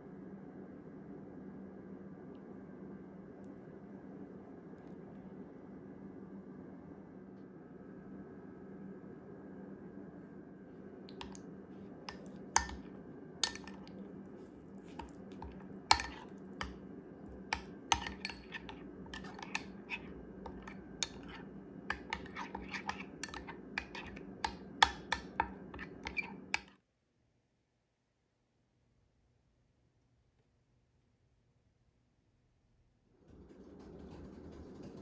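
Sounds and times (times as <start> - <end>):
spoon clinking against glass bowl: 11.1 - 11.4, 12.1 - 14.0, 14.9 - 26.7.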